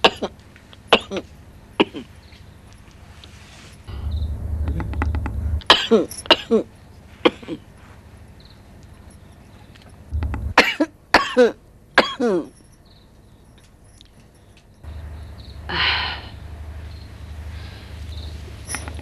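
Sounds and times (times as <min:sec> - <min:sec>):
woman coughing harshly: 0:00.0 - 0:02.2, 0:05.7 - 0:07.7, 0:10.6 - 0:12.6.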